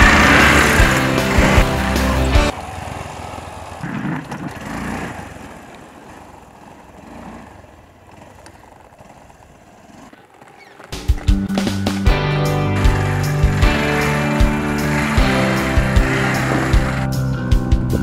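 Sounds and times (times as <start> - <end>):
loud music: 0.0 - 2.5, 11.3 - 18.0
motorcycle engine riding away: 0.0 - 18.0.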